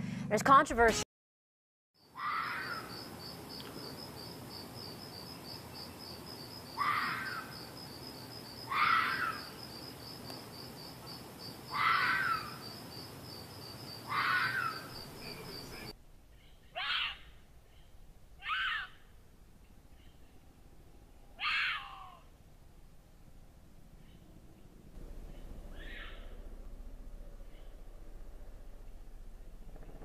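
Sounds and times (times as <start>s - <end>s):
crickets chirping: 2.0s - 16.0s.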